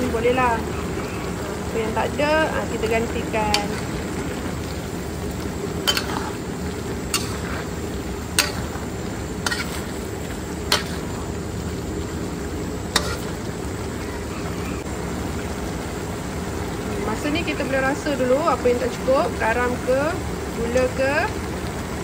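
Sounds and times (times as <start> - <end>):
sauce sizzling: 0.0 - 22.0
metal ladle clinking on wok: 5.8 - 6.3, 7.1 - 7.6, 10.7 - 11.2.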